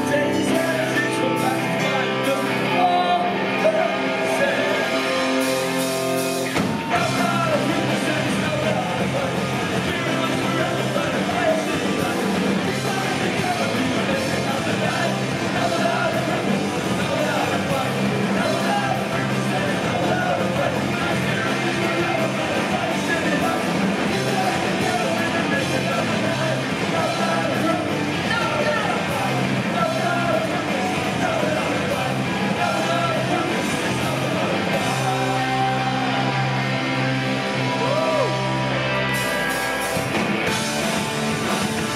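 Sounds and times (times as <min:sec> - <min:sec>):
punk rock band playing live: 0:00.0 - 0:41.9.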